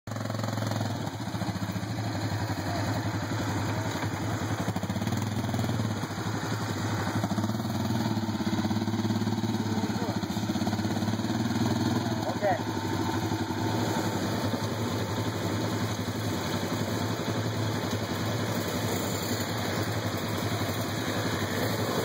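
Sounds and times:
atv engines running: 0.1 - 22.0.

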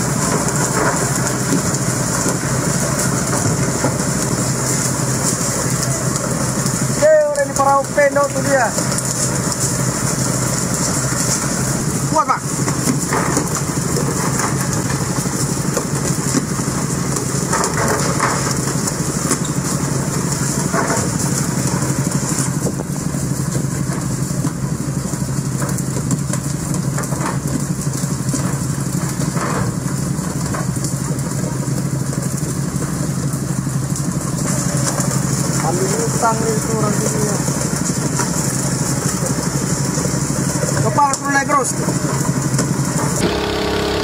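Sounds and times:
water spraying and rushing: 0.0 - 13.9
boat engine running: 0.0 - 29.3, 31.8 - 44.0.

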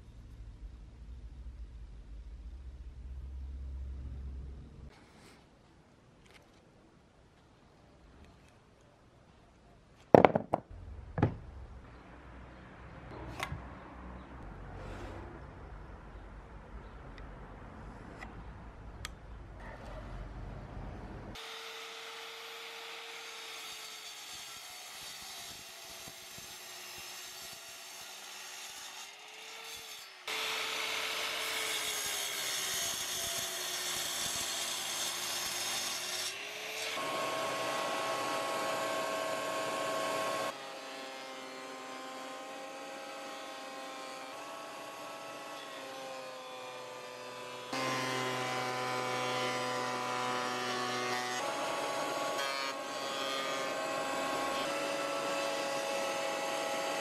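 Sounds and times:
miter saw cutting wood: 21.4 - 57.0.

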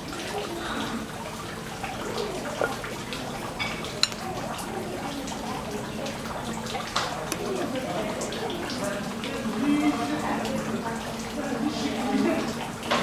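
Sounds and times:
faint voices: 0.0 - 13.0
running trickling water: 0.0 - 13.0.

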